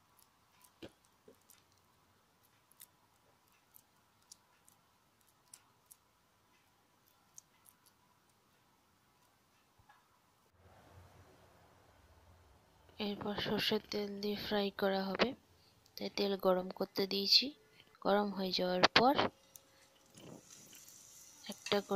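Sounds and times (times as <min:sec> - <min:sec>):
faint steady hum: 0:00.0 - 0:21.9.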